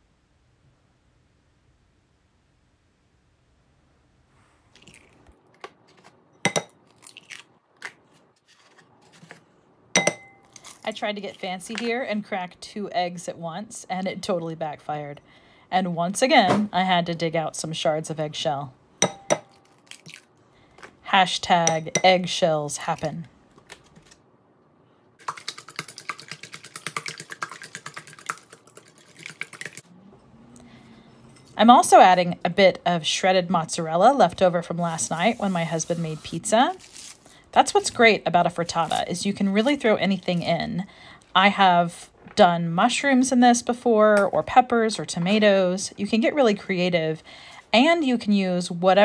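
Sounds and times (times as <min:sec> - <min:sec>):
eggshell crunching: 0:04.7 - 0:06.2, 0:06.8 - 0:08.0, 0:19.5 - 0:20.4
eggshell tapped on glass bowl: 0:19.0 - 0:19.5.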